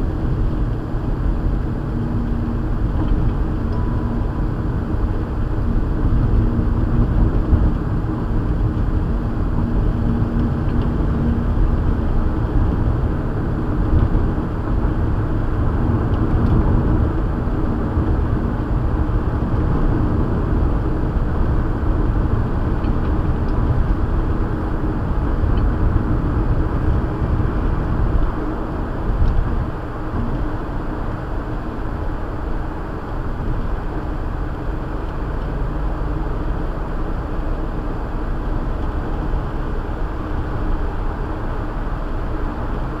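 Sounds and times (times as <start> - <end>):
car road and engine noise: 0.0 - 43.0.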